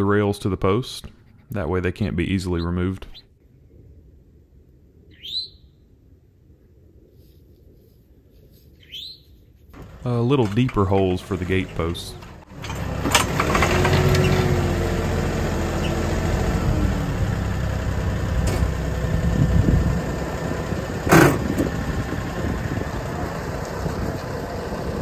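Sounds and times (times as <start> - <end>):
auger boring into ground: 9.8 - 25.0
tractor diesel engine running: 9.8 - 25.0.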